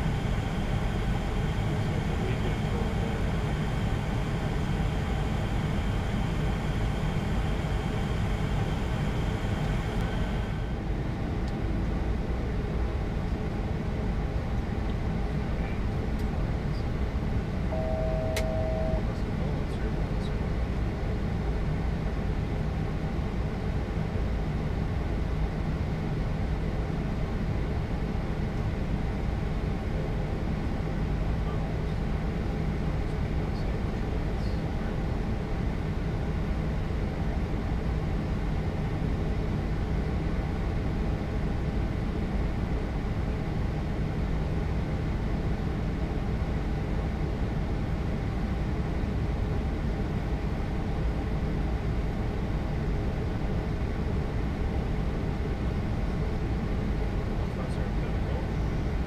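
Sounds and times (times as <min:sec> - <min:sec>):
low hum: 0:00.0 - 0:11.6, 0:17.6 - 0:19.9.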